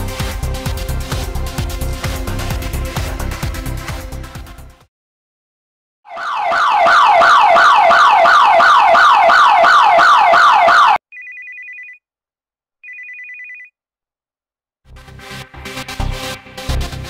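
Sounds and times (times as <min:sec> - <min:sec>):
burglar alarm siren: 0:06.1 - 0:12.0
mobile phone ringing: 0:11.1 - 0:12.0, 0:12.8 - 0:13.7.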